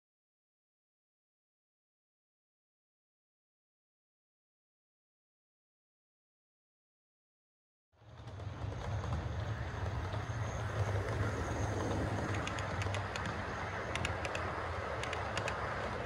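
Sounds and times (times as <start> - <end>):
model train rolling rumble: 8.0 - 16.0
wheels clicking over rail joints: 8.0 - 16.0.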